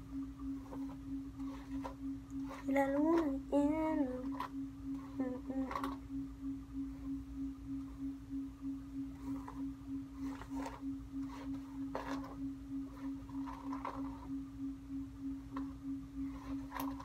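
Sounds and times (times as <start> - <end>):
steady pulsing hum: 0.0 - 17.0.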